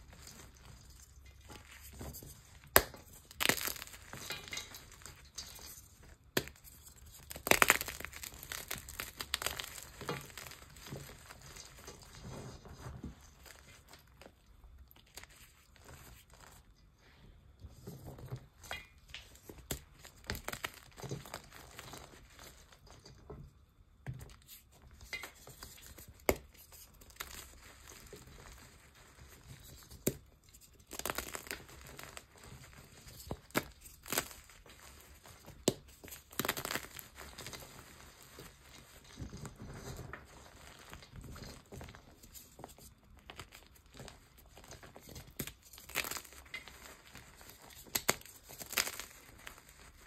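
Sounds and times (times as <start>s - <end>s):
chalk and powder crunching: 0.0s - 14.3s, 25.2s - 50.0s
chalk block cracking: 2.7s - 5.7s, 6.4s - 11.0s.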